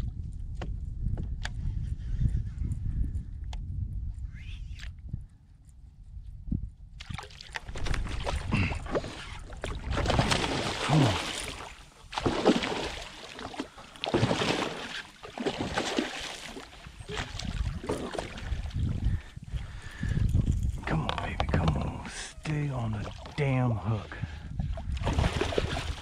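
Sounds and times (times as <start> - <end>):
fish thrashing and splashing: 7.0 - 18.9, 25.0 - 26.0.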